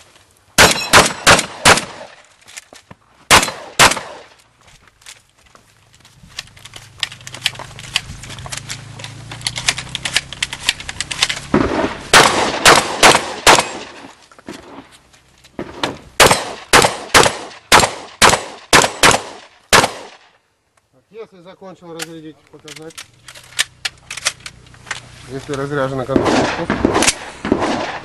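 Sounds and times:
shotgun shots: 0.6s - 2.2s, 3.3s - 4.4s, 11.4s - 14.8s, 15.6s - 20.3s, 26.0s - 28.0s.

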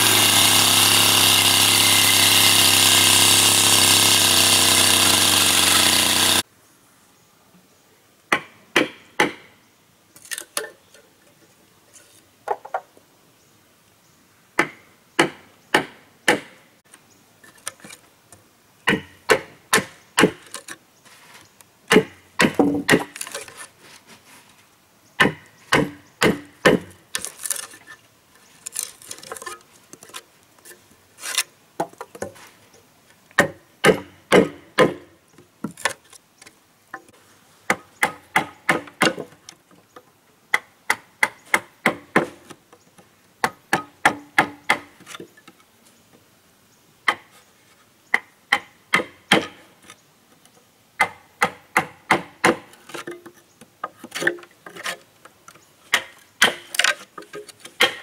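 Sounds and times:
hand tool striking wood: 0.0s - 6.4s, 14.6s - 16.6s, 18.9s - 20.8s, 21.9s - 23.7s, 25.2s - 27.8s, 33.4s - 36.0s, 37.7s - 39.4s, 40.5s - 42.6s, 43.4s - 45.3s, 48.1s - 49.6s, 51.0s - 55.0s, 55.9s - 58.0s.

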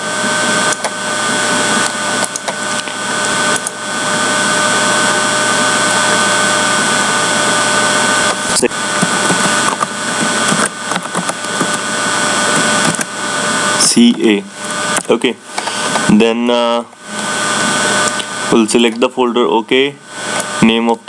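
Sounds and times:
high whining tones: 0.0s - 20.6s
steady hiss and hum: 0.0s - 21.0s
sharp click: 1.8s - 3.8s.

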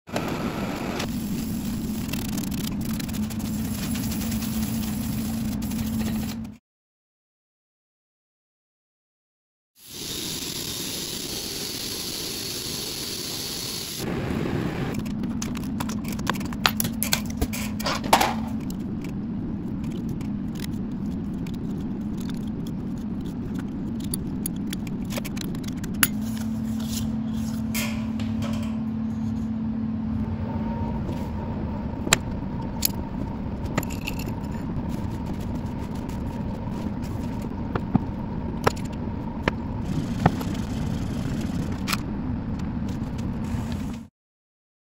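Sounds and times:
workpieces scraping: 19.8s - 29.6s.

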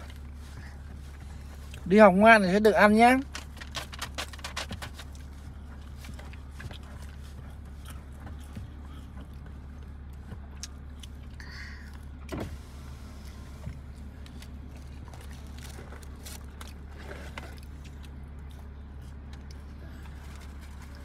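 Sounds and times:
car cabin hum: 0.0s - 21.0s
small clicks and rustles: 3.2s - 10.5s.

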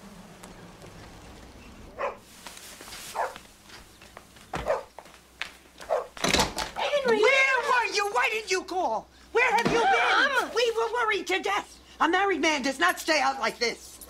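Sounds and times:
dog barking: 2.0s - 2.2s, 3.1s - 3.4s, 4.6s - 4.9s, 5.8s - 6.2s.

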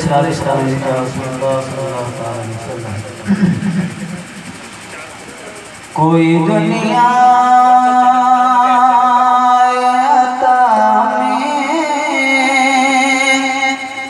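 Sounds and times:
man singing into microphone: 6.0s - 14.0s.

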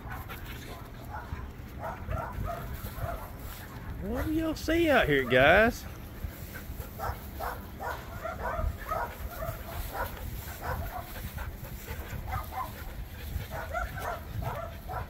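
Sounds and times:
dogs yipping and whining: 6.7s - 15.0s.

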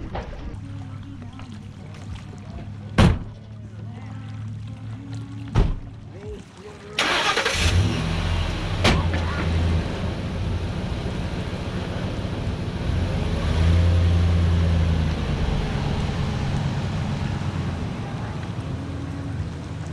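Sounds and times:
pickup truck engine running: 7.0s - 19.9s.

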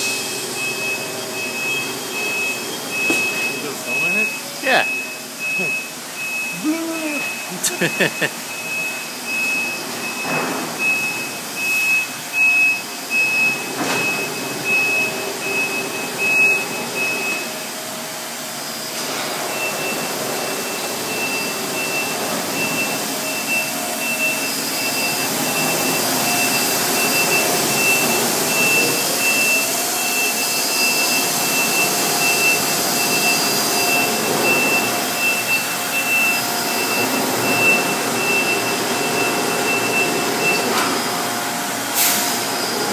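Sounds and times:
high electronic warning beeps: 0.0s - 17.5s, 19.5s - 40.8s
laundry machinery rushing: 18.6s - 42.9s.

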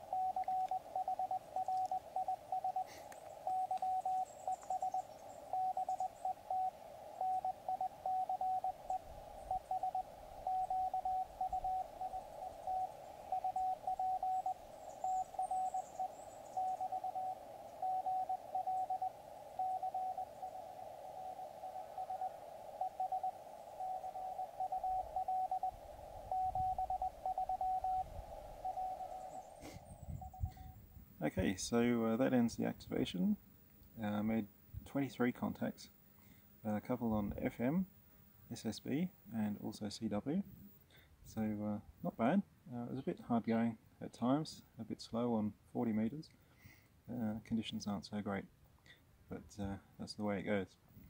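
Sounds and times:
morse code beeps: 0.0s - 30.6s
radio receiver hiss: 0.0s - 42.2s.

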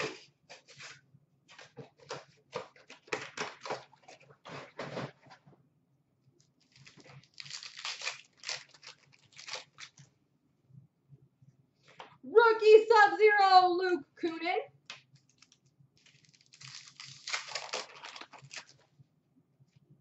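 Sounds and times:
wrappers torn and crinkled: 6.6s - 10.1s, 15.2s - 18.9s.

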